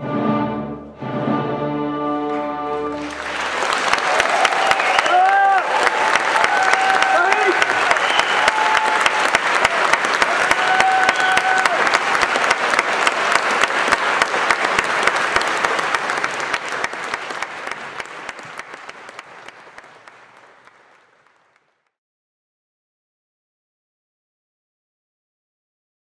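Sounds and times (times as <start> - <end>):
audience applauding: 2.9 - 21.9
crowd calling out: 3.0 - 12.2.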